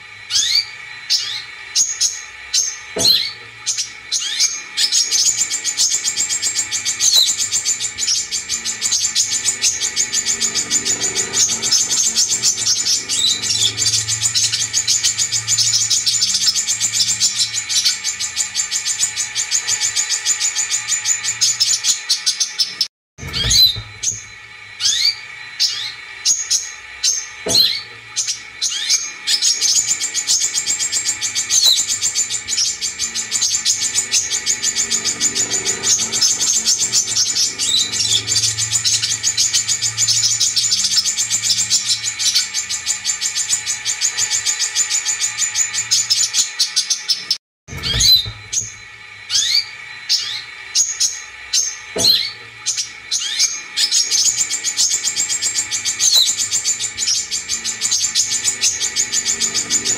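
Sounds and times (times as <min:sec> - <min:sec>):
sharp bird calls: 0:00.2 - 0:59.9
bird chattering trill: 0:00.3 - 0:59.9.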